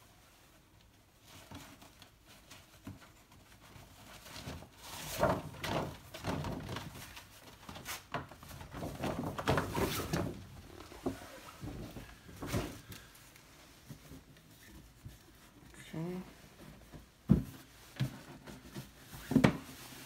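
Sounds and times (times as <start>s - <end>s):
paper bag rustling and crinkling: 3.8s - 15.8s.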